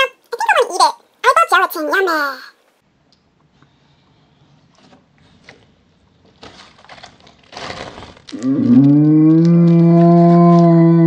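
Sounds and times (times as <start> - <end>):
slime squelching: 4.6 - 11.0.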